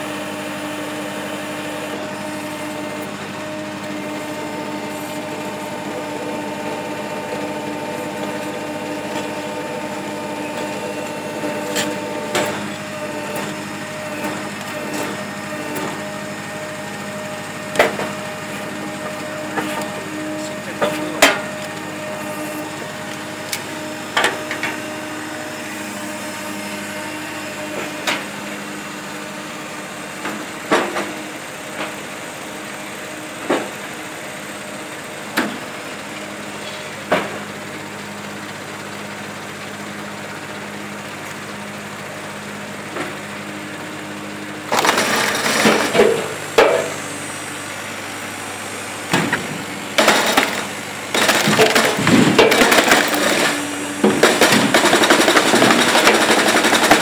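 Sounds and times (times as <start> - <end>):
log splitter humming: 0.0 - 57.0
wood cracking and crushing: 44.7 - 46.4, 49.2 - 57.0.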